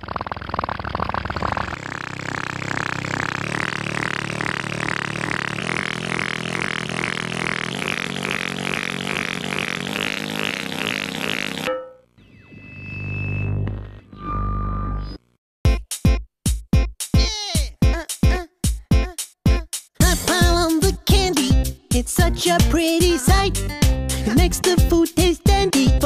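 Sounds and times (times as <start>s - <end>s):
pulsing low mechanical drone: 0.0s - 11.6s.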